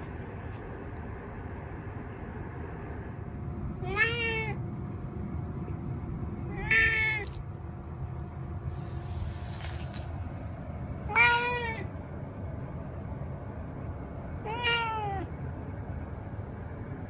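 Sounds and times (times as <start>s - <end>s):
cat meowing: 3.8s - 4.6s, 6.5s - 7.3s, 11.1s - 11.9s, 14.4s - 15.3s.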